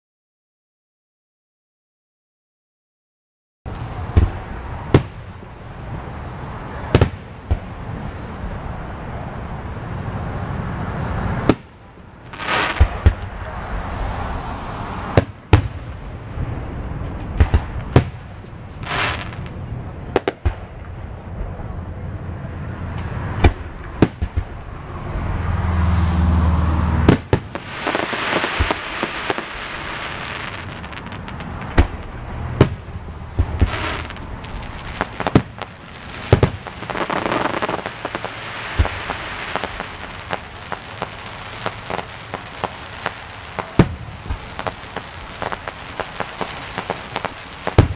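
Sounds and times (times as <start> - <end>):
fireworks popping and banging: 3.7 - 8.7, 11.3 - 14.2, 15.0 - 21.6, 22.9 - 24.8, 27.0 - 47.9.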